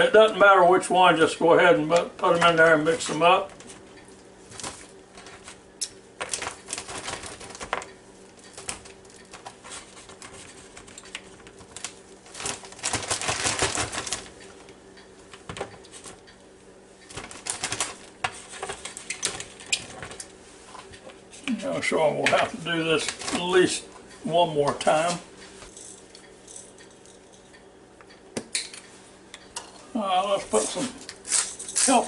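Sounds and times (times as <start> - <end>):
plastic bag crinkling: 6.2 - 7.8, 8.6 - 14.4, 17.1 - 20.0.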